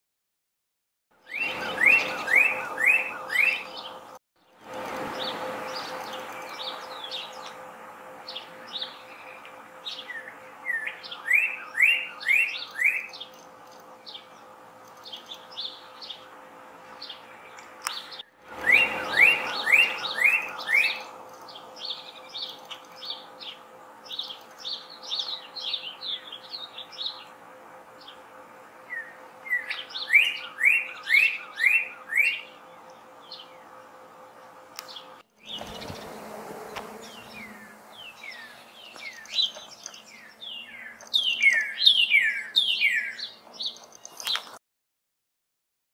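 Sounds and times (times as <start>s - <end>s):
bird singing whistles: 1.3s - 3.8s, 9.9s - 13.2s, 18.0s - 21.1s, 28.9s - 32.5s, 37.0s - 43.3s.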